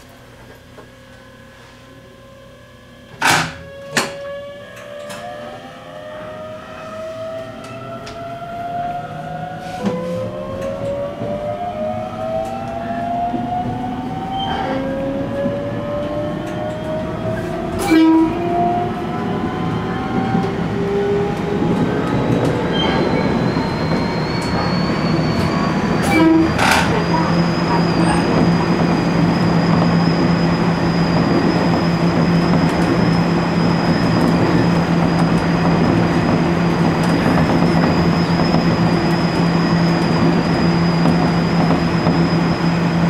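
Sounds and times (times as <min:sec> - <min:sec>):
electric train motors whining: 0:02.0 - 0:43.0
train running rumble: 0:09.5 - 0:43.0.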